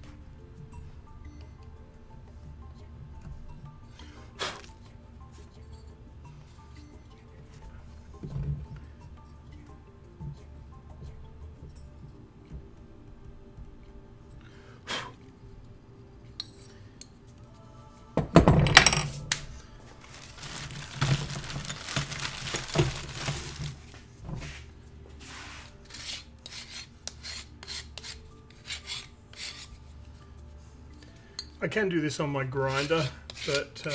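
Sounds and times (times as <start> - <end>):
background music: 0.0 - 33.9
metal tools clattering onto table: 18.4 - 19.3
scraping: 19.0 - 27.2
hand file strokes on plaster: 24.4 - 30.0, 32.5 - 33.9.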